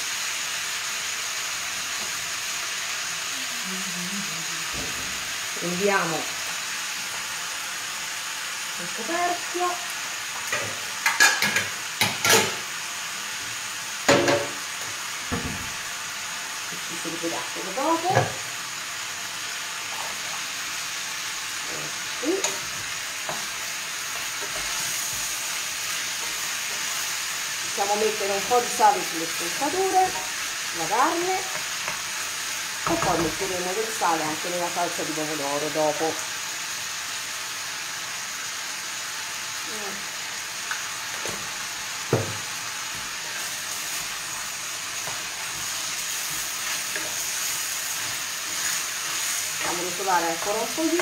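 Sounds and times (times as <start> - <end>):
meat sizzling in a hot pan: 0.0 - 51.0.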